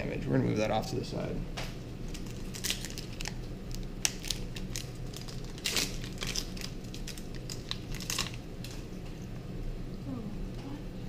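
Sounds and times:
foil wrappers crinkling: 0:02.0 - 0:09.0.

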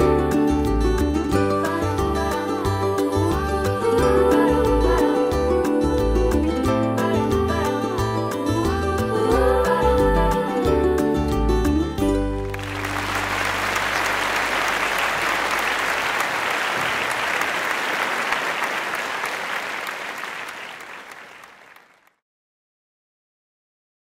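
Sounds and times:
audience applauding: 0:12.4 - 0:22.1.

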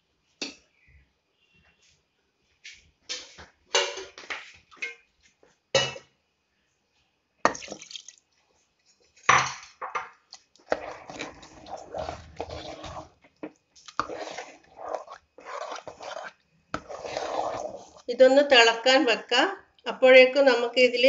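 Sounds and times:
ladle scraping and clinking on pot: 0:10.3 - 0:18.1
ladle stirring wet rice: 0:10.3 - 0:18.1.

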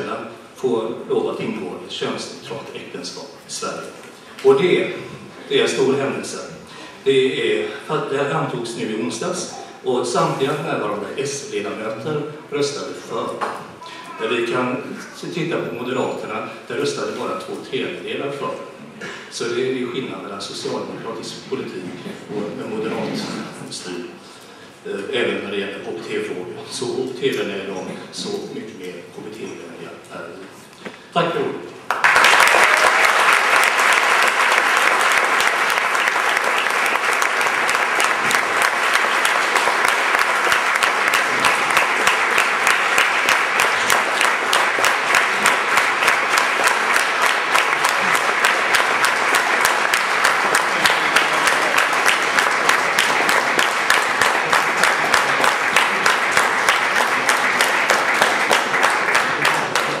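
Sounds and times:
audience applauding: 0:31.9 - 1:00.0.

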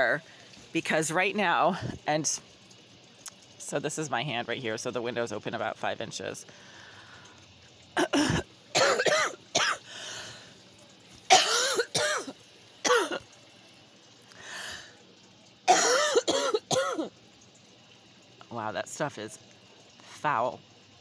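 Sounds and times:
person breathing: 0:06.5 - 0:07.4, 0:09.8 - 0:10.6, 0:14.3 - 0:15.0
person coughing harshly: 0:08.0 - 0:09.9, 0:11.3 - 0:13.2, 0:15.7 - 0:17.1.

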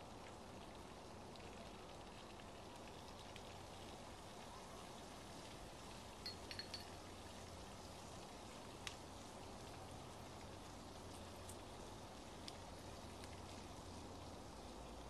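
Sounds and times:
low hiss: 0:00.0 - 0:15.0
wood fire crackling: 0:05.5 - 0:15.0.

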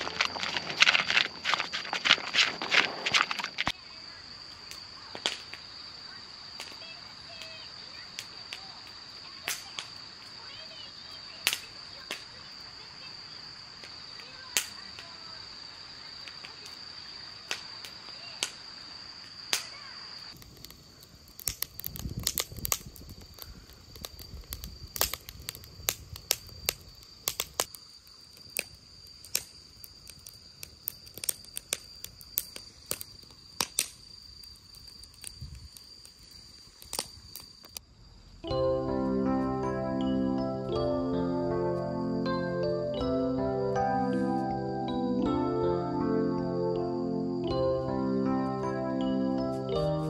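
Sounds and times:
crickets trilling: 0:00.0 - 0:50.0
sharp clicks and snaps: 0:20.3 - 0:27.7, 0:30.9 - 0:34.0, 0:34.8 - 0:37.8.

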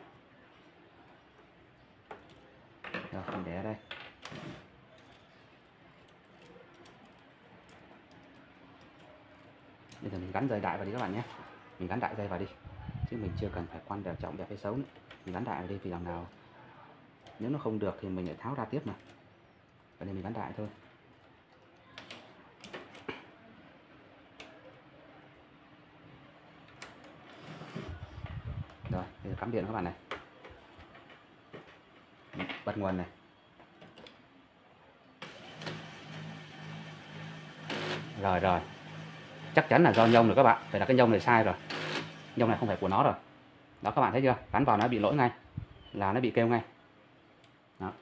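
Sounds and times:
small clicks and rustles: 0:03.9 - 0:10.4.

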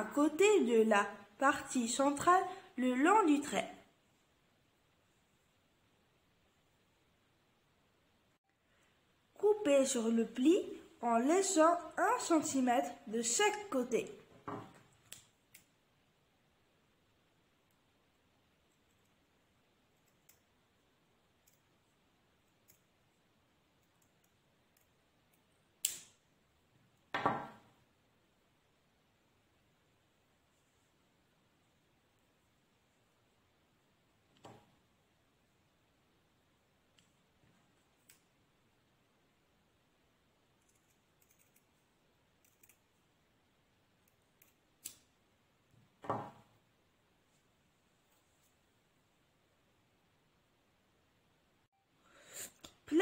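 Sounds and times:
scissors snipping fabric: 0:40.6 - 0:41.8, 0:42.4 - 0:43.0.

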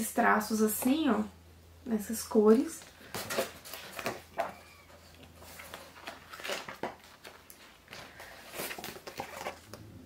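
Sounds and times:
pages rustling: 0:03.0 - 0:09.8.

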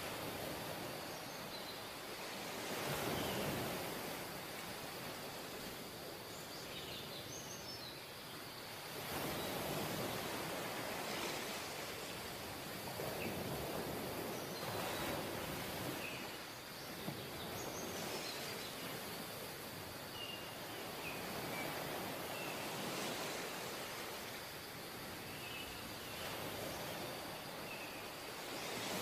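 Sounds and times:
surf washing up beach: 0:00.0 - 0:07.2, 0:08.2 - 0:29.0.

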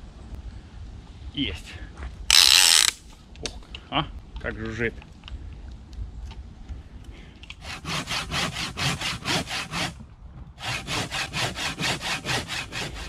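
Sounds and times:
saw rasping through a block: 0:07.6 - 0:10.0, 0:10.6 - 0:13.0.

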